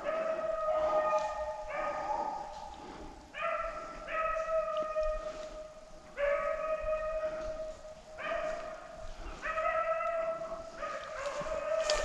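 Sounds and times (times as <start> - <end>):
hound baying: 0.0 - 2.6, 6.2 - 12.0.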